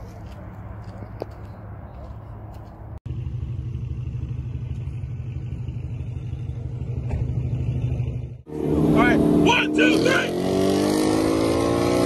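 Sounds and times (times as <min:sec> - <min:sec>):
car engine idling: 0:00.2 - 0:09.8.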